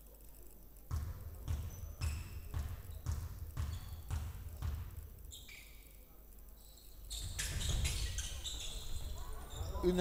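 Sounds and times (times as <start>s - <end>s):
basketball bouncing on hardwood: 0.9s - 5.0s.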